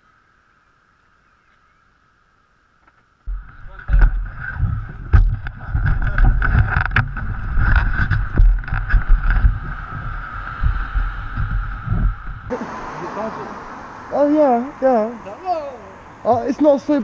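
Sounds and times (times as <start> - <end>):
steady rushing noise: 3.2 - 17.0
microphone buffeting and knocks: 3.3 - 12.5, 16.3 - 16.7.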